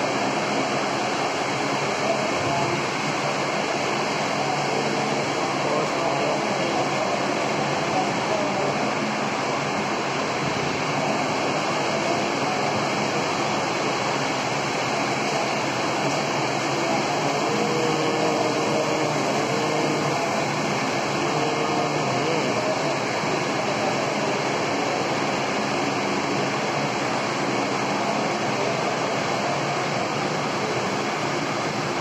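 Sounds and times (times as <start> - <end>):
electric fans whooshing hum: 0.0 - 32.0.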